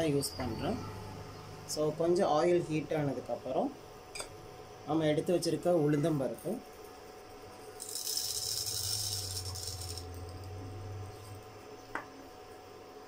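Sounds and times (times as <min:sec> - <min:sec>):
lentils sizzling in hot oil: 0:07.5 - 0:11.3.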